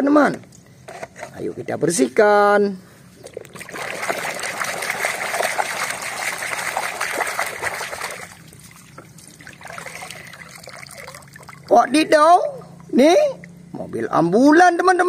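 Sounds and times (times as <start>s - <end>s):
water splashing in a basin: 3.2s - 11.8s.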